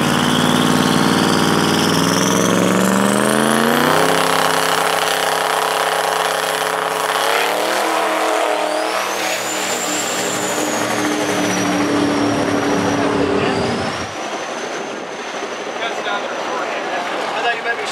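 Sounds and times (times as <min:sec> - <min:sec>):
high whistle: 0:00.0 - 0:02.5, 0:07.3 - 0:14.2
diesel engine revving and launching: 0:00.0 - 0:14.2.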